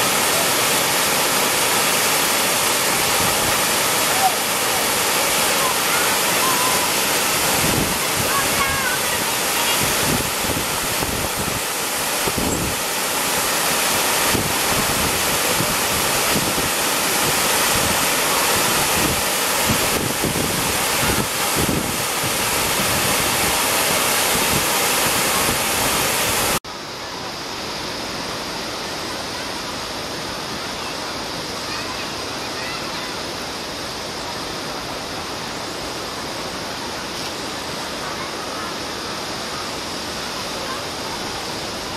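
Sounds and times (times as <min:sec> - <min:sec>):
river water rushing over cascade: 0:00.0 - 0:41.9.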